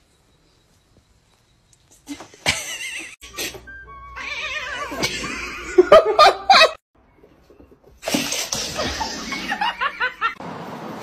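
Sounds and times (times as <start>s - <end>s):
person laughing: 2.1s - 3.6s.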